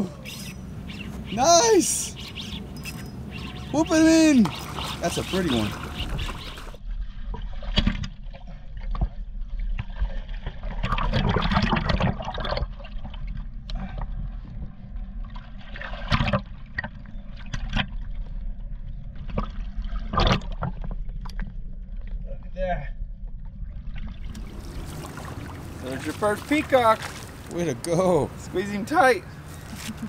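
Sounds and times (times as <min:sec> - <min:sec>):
water sloshing and splashing: 0:02.1 - 0:22.2, 0:23.4 - 0:28.4
fish splashing in shallows: 0:02.2 - 0:06.8, 0:24.2 - 0:27.5.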